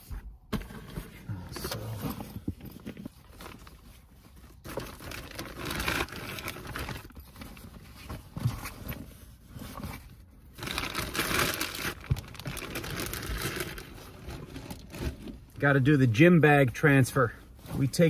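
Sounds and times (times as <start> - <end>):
plastic bag crinkling: 3.2 - 7.6, 10.5 - 15.0.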